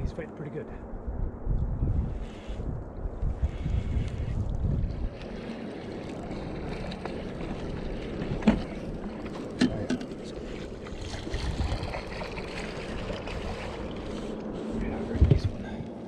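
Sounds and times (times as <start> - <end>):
water lapping and splashing: 2.1 - 16.0.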